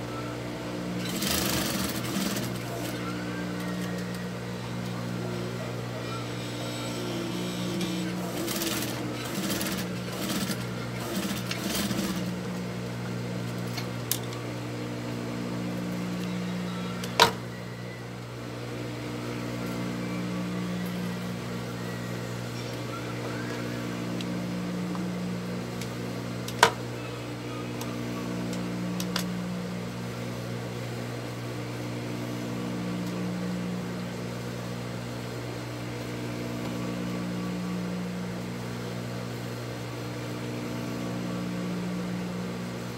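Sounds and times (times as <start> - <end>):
sewing machine motor humming: 0.9 - 5.6, 6.2 - 12.6
sewing machine stitching: 1.0 - 3.0, 7.3 - 12.4.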